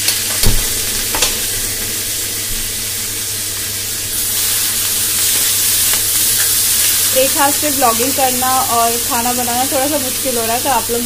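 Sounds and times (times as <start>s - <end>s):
onion sizzling in oil: 0.0s - 11.0s.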